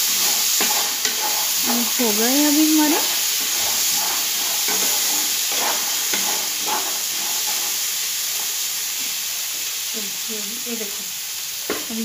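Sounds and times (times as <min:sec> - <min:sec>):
wooden spatula scraping pan: 0:00.0 - 0:08.6
chickpeas sizzling in oil: 0:00.0 - 0:12.0.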